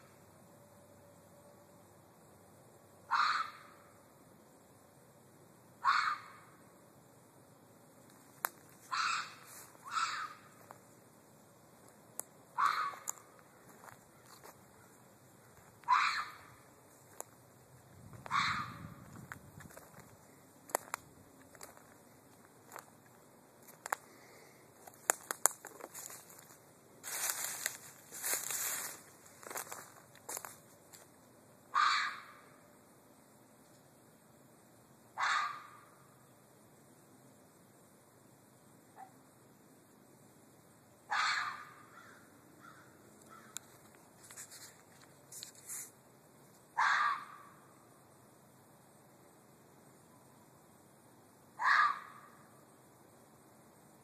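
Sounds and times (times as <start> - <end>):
fox screaming: 3.1 - 3.8, 5.8 - 6.4, 8.9 - 10.5, 12.6 - 13.1, 15.9 - 16.6, 18.2 - 19.0, 31.7 - 32.4, 35.2 - 35.8, 41.1 - 43.5, 46.8 - 47.5, 51.6 - 52.3
rustling of brush: 8.4 - 10.9, 24.8 - 31.1, 43.6 - 46.6
footsteps crunching through dry leaves: 12.6 - 14.6, 18.0 - 22.9, 24.8 - 31.1
twigs snapping: 25.0 - 26.2.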